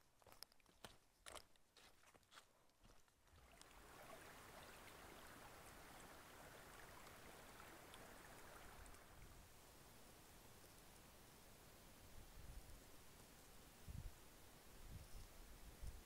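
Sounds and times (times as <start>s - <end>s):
water running over rocks: 3.3s - 9.6s.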